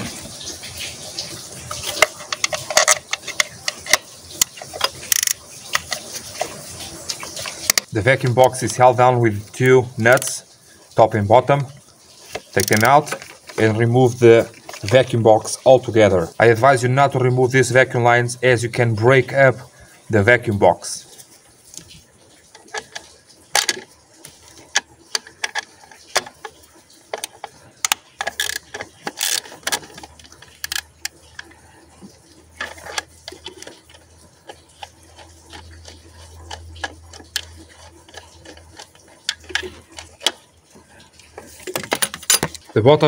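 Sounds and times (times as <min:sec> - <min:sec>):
small metal knocks: 0:01.6 - 0:06.5, 0:22.5 - 0:31.5, 0:41.3 - 0:42.8.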